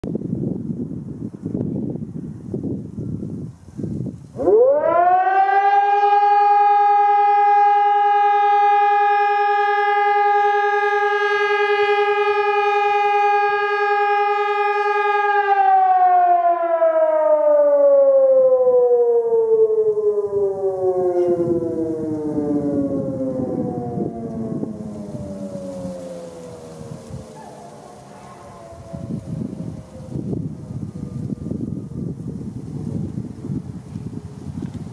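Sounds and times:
electronic siren wailing: 0:04.4 - 0:32.2.

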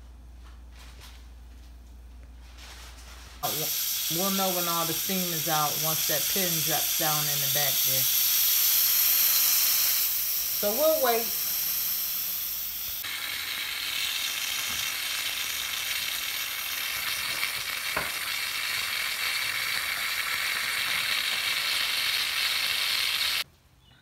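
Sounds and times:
steam valve hissing: 0:03.4 - 0:23.4.

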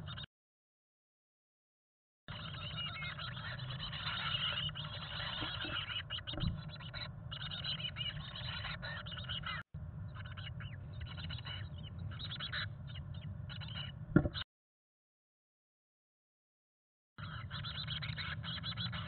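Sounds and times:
nestlings chirping: 0:02.3 - 0:14.4, 0:17.2 - 0:19.0
thump: 0:14.1 - 0:14.4.

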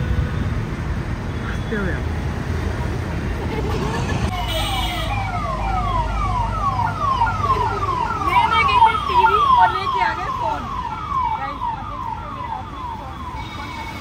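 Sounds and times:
low traffic rumble: 0:00.0 - 0:14.0
vehicle siren sweeping: 0:04.3 - 0:14.0.

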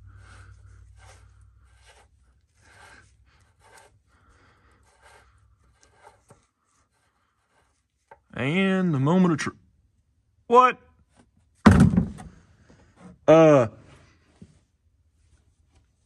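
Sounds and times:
drain plug scratching and rubbing: 0:00.0 - 0:08.8.

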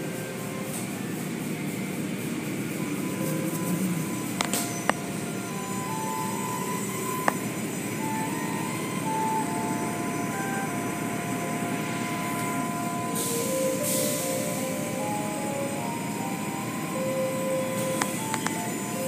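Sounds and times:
car wash machinery rumble: 0:00.0 - 0:19.0
hissing spray burst: 0:11.3 - 0:15.7.

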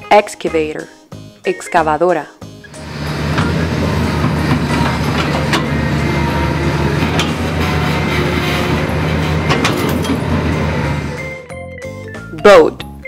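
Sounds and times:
excavator engine running: 0:02.7 - 0:11.5.

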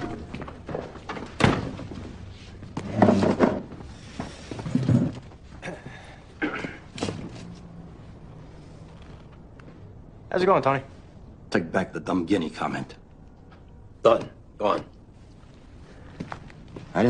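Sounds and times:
door shutting: 0:00.0 - 0:02.0
knocks and bumps of people moving: 0:00.0 - 0:10.3.

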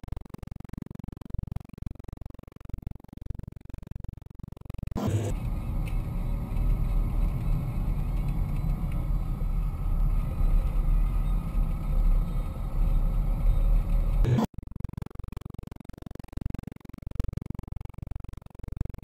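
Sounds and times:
engine and road noise in cabin: 0:05.0 - 0:14.5.

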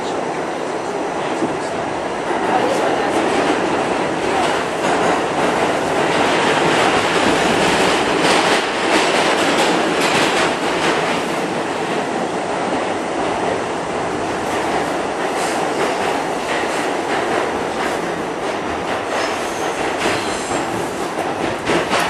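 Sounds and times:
subway wheels rumbling on rail: 0:00.0 - 0:22.0
clacks over rail joints: 0:01.4 - 0:12.0, 0:14.4 - 0:22.0.

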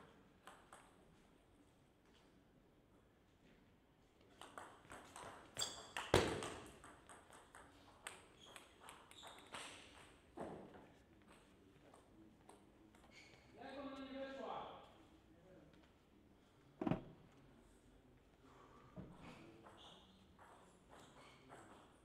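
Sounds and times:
loud knock: 0:16.8 - 0:17.0.

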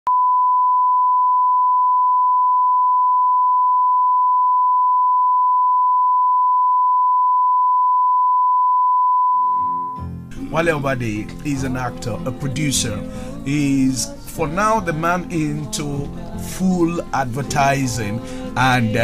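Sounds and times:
steady test tone beep: 0:00.1 - 0:10.1.

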